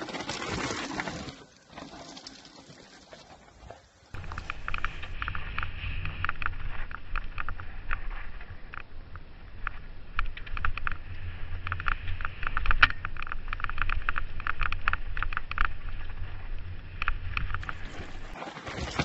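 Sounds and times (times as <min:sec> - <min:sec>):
wind rumble on microphone: 0:04.2 - 0:18.4
bike clicks and clatter: 0:04.2 - 0:19.0.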